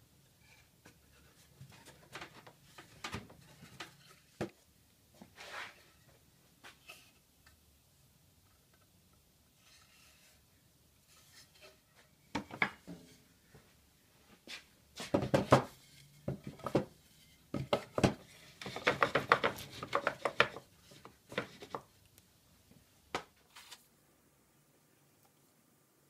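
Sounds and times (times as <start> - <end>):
wooden boards knocking and clattering: 1.6 - 4.6, 12.3 - 13.1, 15.0 - 21.9.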